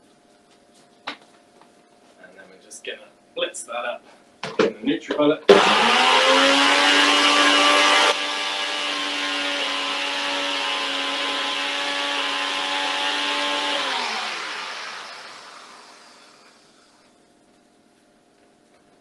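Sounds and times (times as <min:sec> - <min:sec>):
blender motor running: 0:05.5 - 0:17.2.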